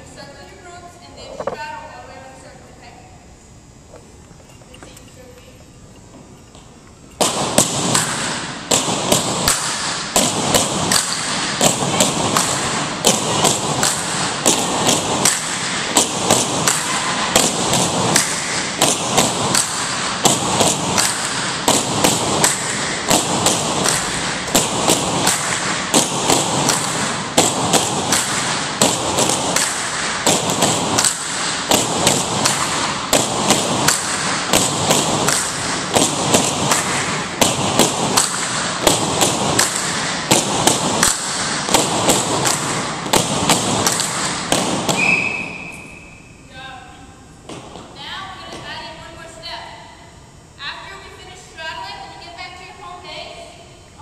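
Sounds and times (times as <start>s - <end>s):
bamboo poles knocking rhythmically: 7.2s - 45.2s.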